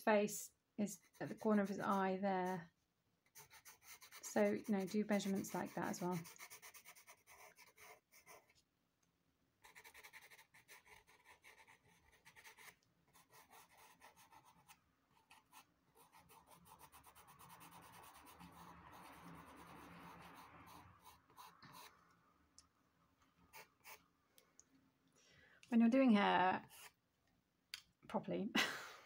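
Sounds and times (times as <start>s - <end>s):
pencil scratching on paper: 1.0s - 2.7s, 3.3s - 8.6s, 9.6s - 22.0s, 23.5s - 24.0s.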